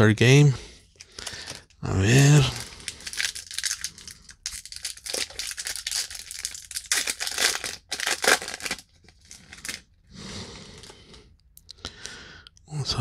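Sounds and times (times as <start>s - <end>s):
trading cards rustling: 0.9s - 9.8s.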